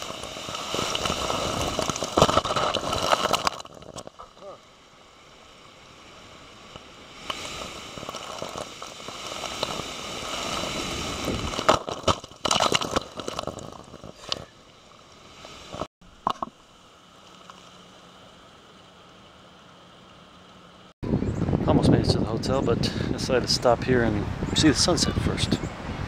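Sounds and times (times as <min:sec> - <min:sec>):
wash of surf: 0:00.0 - 0:03.3, 0:05.6 - 0:11.7
seawater surging through rock: 0:05.6 - 0:11.8.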